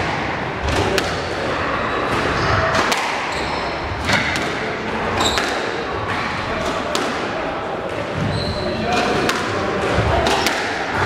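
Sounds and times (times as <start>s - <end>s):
squash ball cracking off rackets: 4.0s - 8.1s, 8.9s - 11.0s
shoes squeaking on wooden floor: 5.2s - 5.5s, 8.2s - 8.8s.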